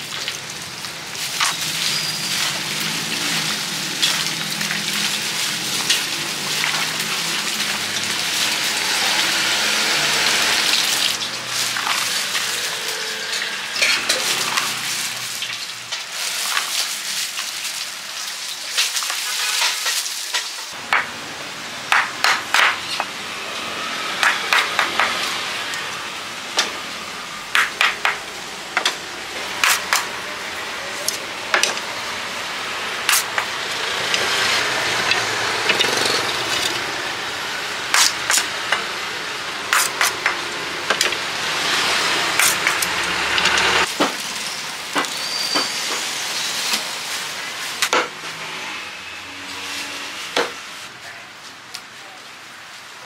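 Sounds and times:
cleaver chopping bamboo: 0:21.9 - 0:22.9, 0:24.2 - 0:25.2, 0:27.5 - 0:28.2, 0:29.6 - 0:30.1, 0:33.1 - 0:33.5, 0:37.9 - 0:38.5, 0:39.7 - 0:40.4, 0:42.4 - 0:43.0.

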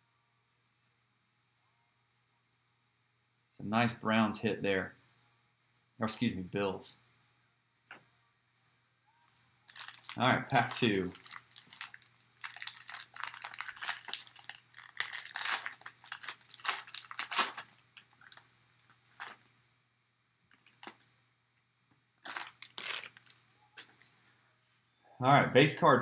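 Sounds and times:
foil wrapper tearing and crinkling: 0:09.7 - 0:19.5, 0:20.5 - 0:21.0, 0:22.2 - 0:23.4.

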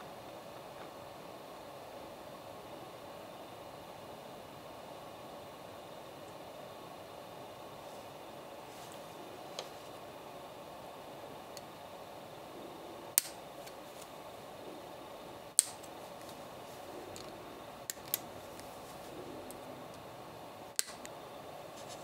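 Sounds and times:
side cutters snipping plastic: 0:13.2 - 0:13.4, 0:15.6 - 0:15.9, 0:20.8 - 0:21.1.

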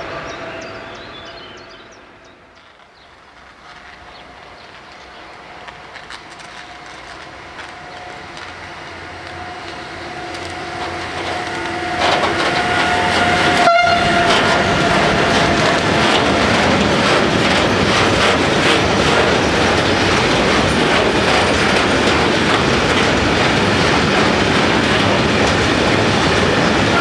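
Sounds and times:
freight train passing: 0:00.0 - 0:27.0
steady locomotive tone: 0:00.0 - 0:27.0
wheel clatter over rail joints: 0:05.8 - 0:27.0.

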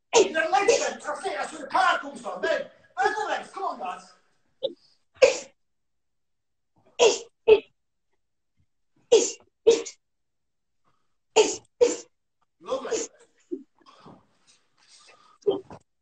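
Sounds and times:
sharp exhaled breaths: 0:13.8 - 0:15.6.

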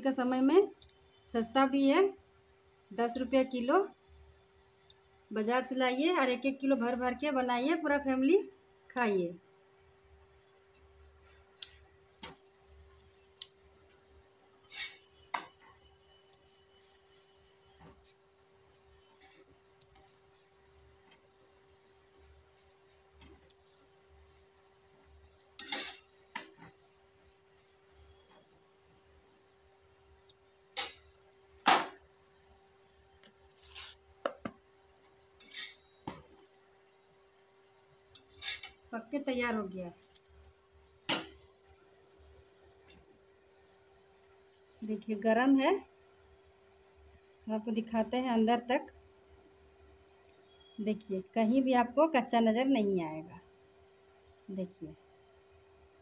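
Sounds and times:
spatula scraping a griddle: 0:14.6 - 0:15.8, 0:16.4 - 0:21.4, 0:22.1 - 0:28.6, 0:30.8 - 0:31.0, 0:33.6 - 0:34.0, 0:35.4 - 0:36.2, 0:38.2 - 0:38.8.

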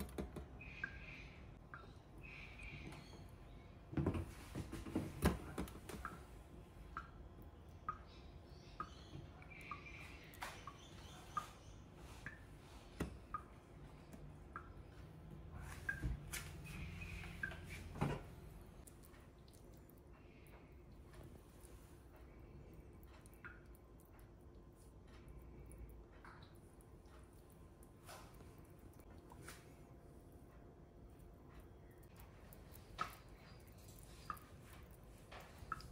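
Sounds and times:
faint low hum: 0:00.0 - 0:35.9.

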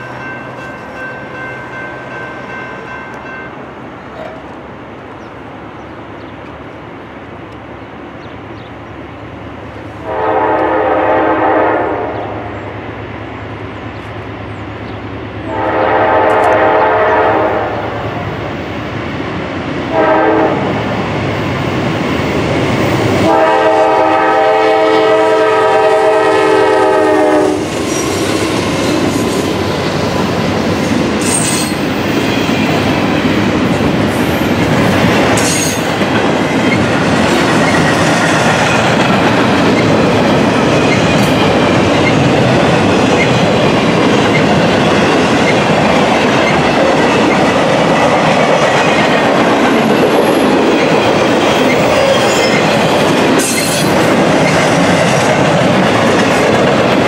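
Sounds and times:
locomotive air horn blasts: 0:10.0 - 0:12.5, 0:15.4 - 0:18.2, 0:19.9 - 0:20.7, 0:23.2 - 0:27.7
train wheels clacking over rails: 0:18.2 - 0:57.0.

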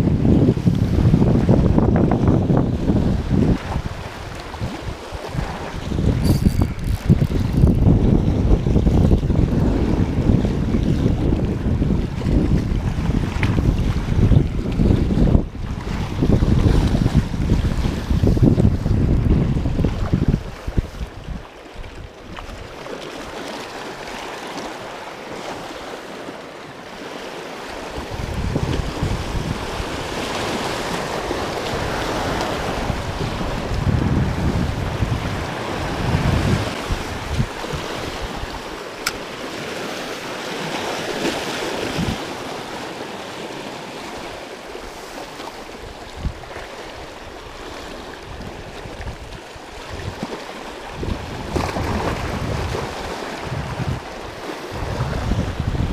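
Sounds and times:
wind buffeting microphone: 0:00.0 - 0:22.9, 0:27.9 - 0:42.9, 0:44.8 - 0:55.9
waves washing over rocks: 0:00.0 - 0:55.9
sharp click: 0:39.0 - 0:39.2.

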